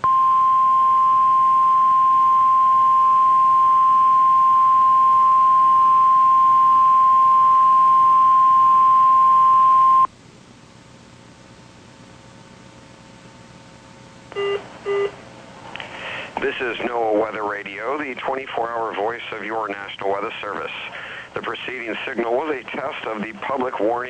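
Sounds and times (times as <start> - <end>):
faint radio static: 12.0 - 24.0.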